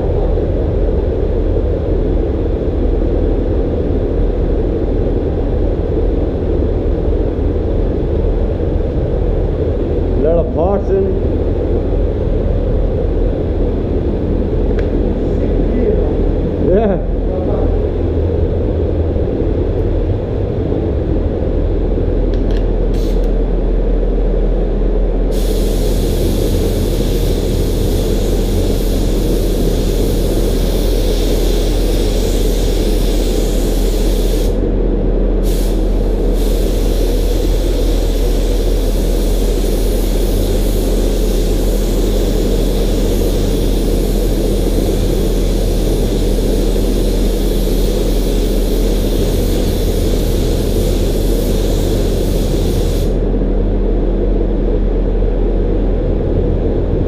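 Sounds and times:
steady low hum: 0:00.0 - 0:57.0
spray gun hissing: 0:22.9 - 0:23.3, 0:25.3 - 0:34.6, 0:35.4 - 0:53.2.

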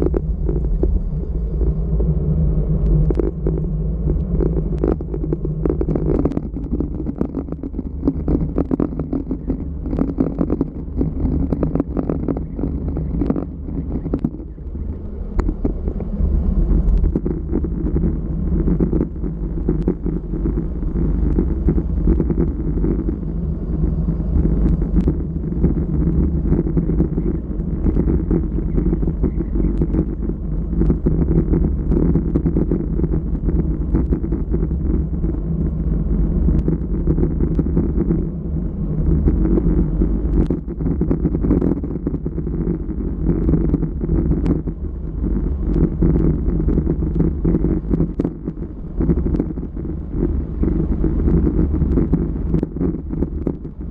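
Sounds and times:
wind rumble on microphone: 0:00.0 - 0:53.9
tyres on rough asphalt: 0:02.9 - 0:49.2.

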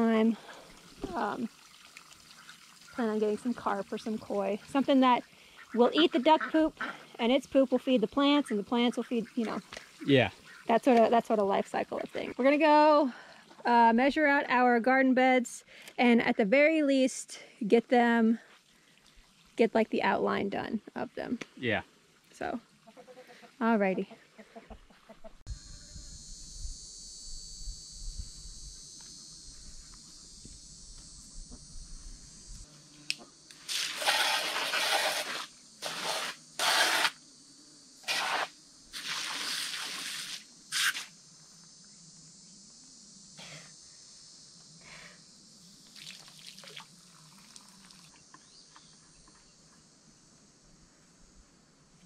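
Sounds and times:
insects chorus: 0:00.0 - 0:24.9, 0:25.5 - 0:52.0
hose spray nozzle hissing: 0:33.5 - 0:37.2, 0:38.0 - 0:41.2.

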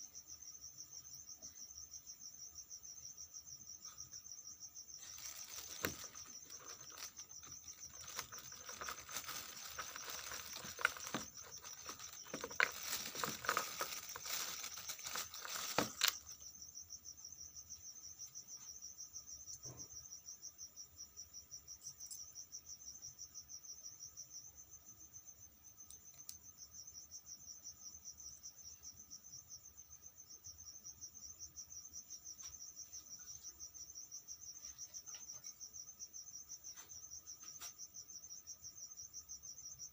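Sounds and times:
crickets chirping: 0:00.0 - 0:39.9
close rustling and handling noise: 0:05.0 - 0:16.4.

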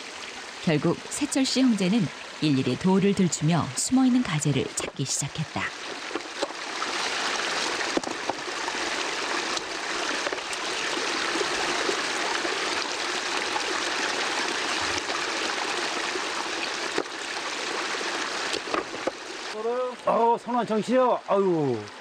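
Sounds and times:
stream running over rocks: 0:00.0 - 0:22.0
stones splashing and knocking: 0:06.0 - 0:10.8, 0:18.4 - 0:19.2.

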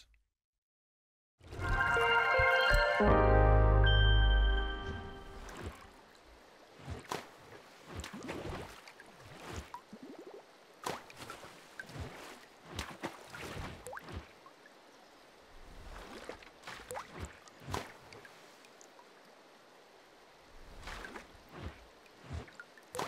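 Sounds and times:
water dripping and splashing: 0:05.2 - 0:14.8, 0:15.5 - 0:19.3, 0:20.6 - 0:23.0.

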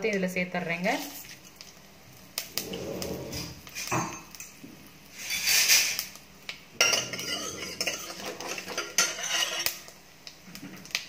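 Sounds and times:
ladle scraping and clinking pot: 0:06.8 - 0:09.8.

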